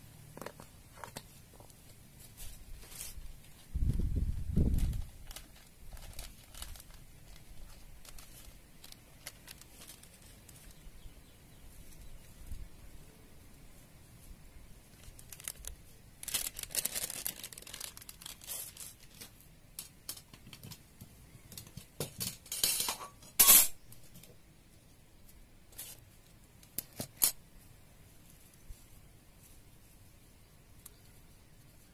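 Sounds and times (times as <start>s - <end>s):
packet crinkling and tearing: 4.3s - 10.8s, 14.9s - 19.3s.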